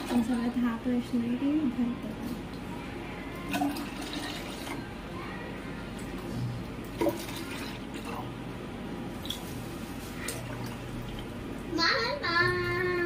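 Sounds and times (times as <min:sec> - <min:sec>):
water pouring into plastic bottle: 0:06.9 - 0:08.3.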